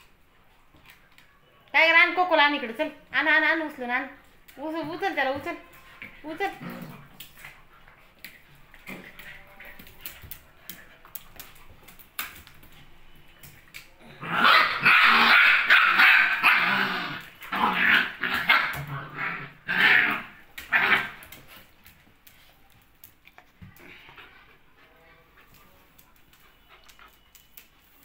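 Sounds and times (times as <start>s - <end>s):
dogs barking and growling: 6.2s - 10.2s, 14.0s - 21.6s.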